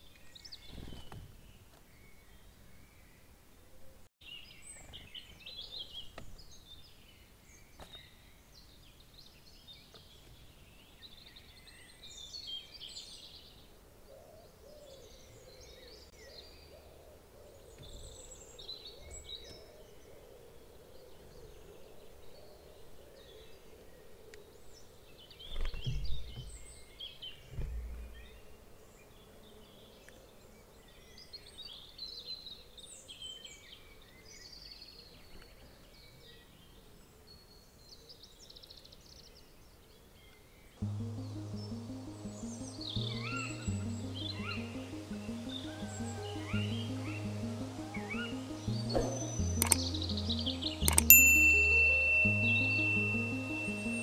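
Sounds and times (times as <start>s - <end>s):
songbirds singing and chirping: 0.0s - 54.0s
faint steady drone: 40.8s - 54.0s.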